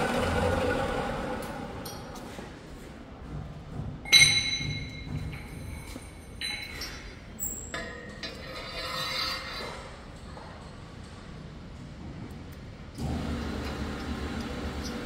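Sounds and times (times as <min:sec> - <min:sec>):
metal parts clinking: 0:04.1 - 0:09.2.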